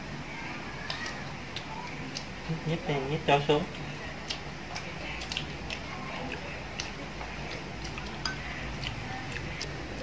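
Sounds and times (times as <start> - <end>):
chopsticks clicking on bowls: 4.3 - 9.8.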